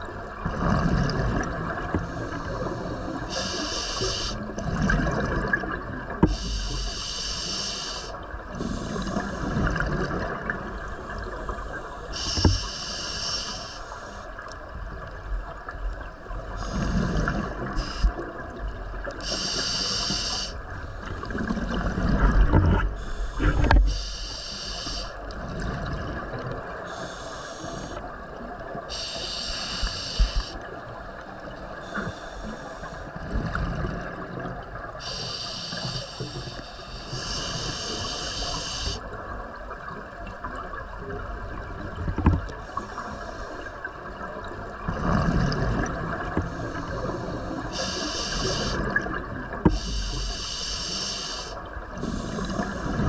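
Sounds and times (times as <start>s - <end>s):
regulator hissing with breath: 2.0s - 4.5s, 6.3s - 9.6s, 11.0s - 14.3s, 16.6s - 18.2s, 19.2s - 21.1s, 23.0s - 25.2s, 26.9s - 28.1s, 28.9s - 30.6s, 31.2s - 33.1s, 35.0s - 39.1s, 46.4s - 49.0s, 49.7s - 53.0s.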